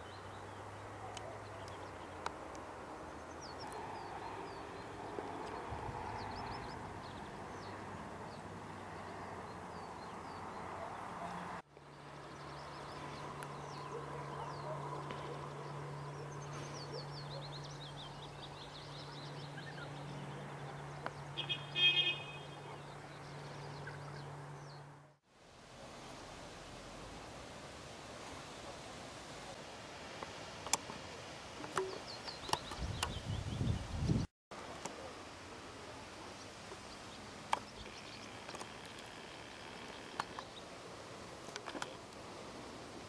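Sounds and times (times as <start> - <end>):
small birds chirping: 0.0 - 24.9, 31.6 - 34.3, 35.9 - 42.2.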